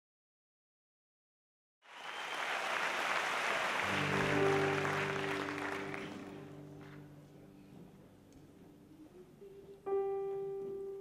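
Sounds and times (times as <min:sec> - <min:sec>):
audience applause: 0:01.9 - 0:07.0
keyboard low held chord: 0:04.1 - 0:11.0.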